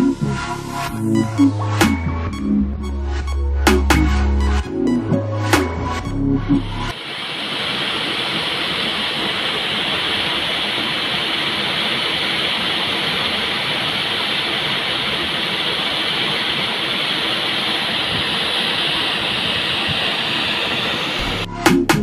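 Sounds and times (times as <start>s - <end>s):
waterfall splashing into pool: 6.9s - 21.4s.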